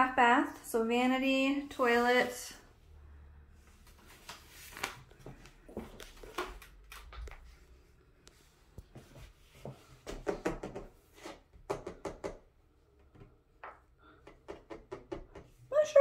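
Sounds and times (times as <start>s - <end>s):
fingers knocking on wall tile: 10.0s - 12.5s, 13.1s - 15.6s.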